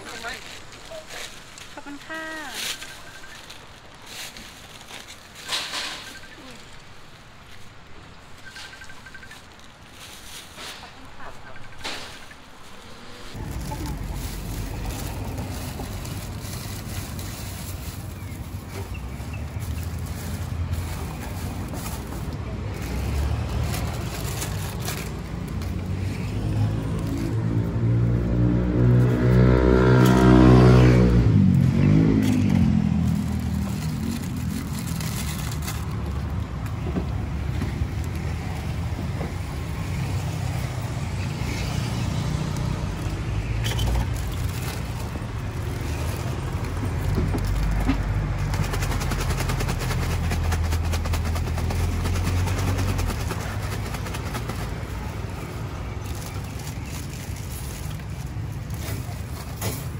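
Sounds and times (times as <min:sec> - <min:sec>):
low engine rumble: 0:00.0 - 0:59.9
passing vehicle engine: 0:12.7 - 0:59.9.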